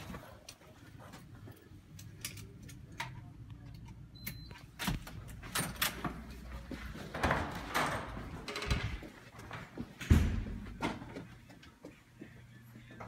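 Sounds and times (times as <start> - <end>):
card reader beep: 4.1 - 4.8
footsteps: 5.3 - 13.0.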